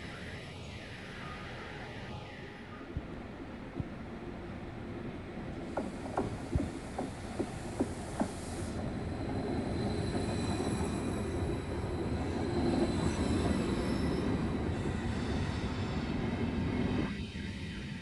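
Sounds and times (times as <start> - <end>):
faint high whine: 0.0 - 5.1
train rolling rumble: 0.1 - 18.0.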